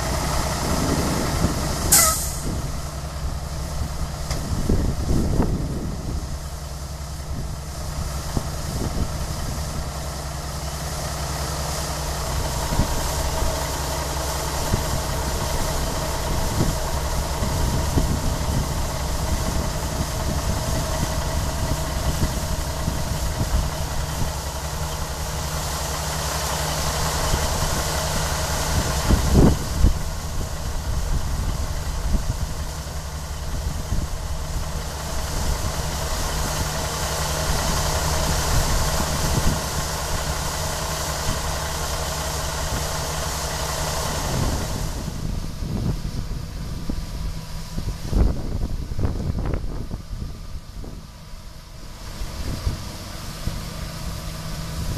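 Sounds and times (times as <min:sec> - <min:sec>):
auger pouring grain: 0:00.0 - 0:48.2
diesel engine running: 0:00.0 - 0:54.9.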